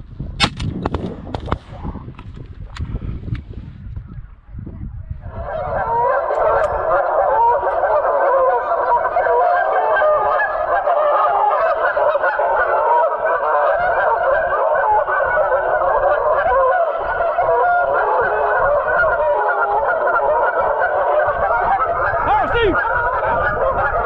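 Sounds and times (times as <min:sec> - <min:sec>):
wind rumbling on microphone: 0:00.0 - 0:24.0
geese honking: 0:05.3 - 0:24.0.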